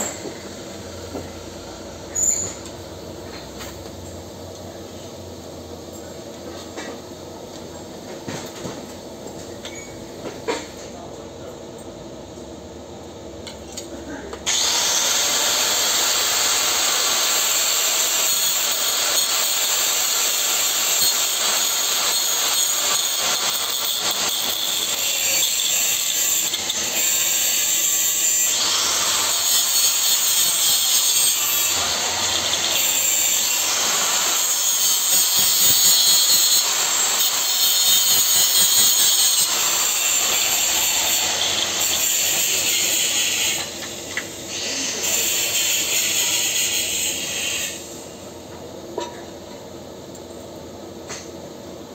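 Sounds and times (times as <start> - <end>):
angle grinder grinding metal: 14.5 - 47.8.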